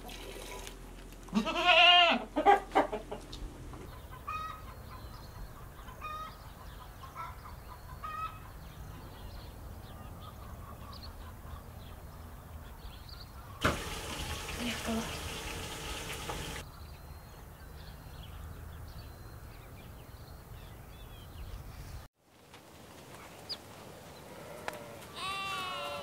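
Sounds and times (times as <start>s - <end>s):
farmyard animals calling: 1.2s - 11.8s, 24.2s - 26.0s.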